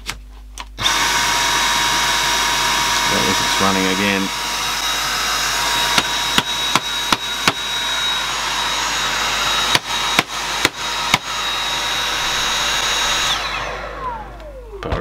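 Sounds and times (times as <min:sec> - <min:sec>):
vacuum motor whine: 0:00.8 - 0:15.0
sharp knocks on vacuum: 0:05.9 - 0:07.6.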